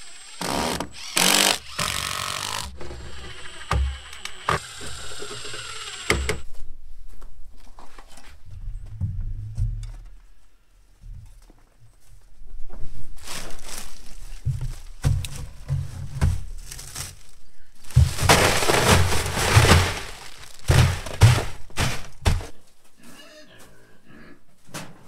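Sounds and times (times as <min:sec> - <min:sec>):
plastic bag rustling: 0:13.0 - 0:22.6
ice cubes clattering on plastic: 0:17.9 - 0:22.4.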